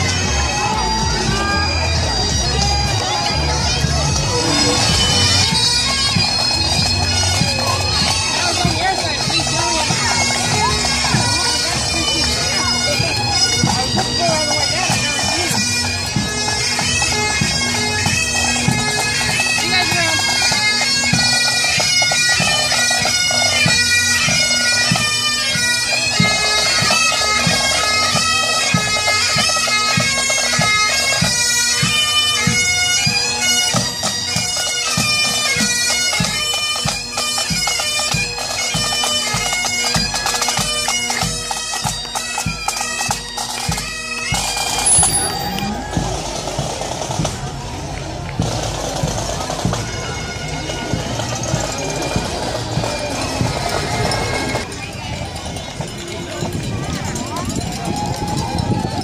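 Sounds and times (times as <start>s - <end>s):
bagpipes playing a tune: 0.0s - 59.0s.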